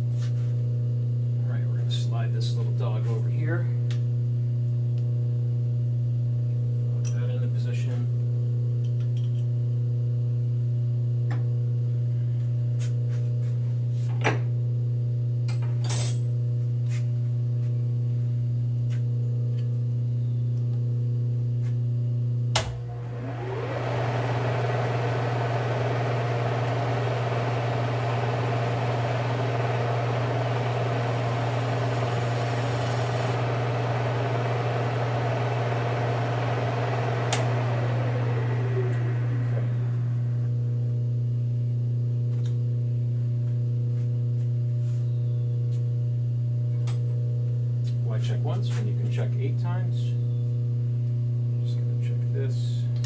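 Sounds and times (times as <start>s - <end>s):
steady low hum: 22.4s - 42.2s
milling machine motor whirring: 22.6s - 40.6s.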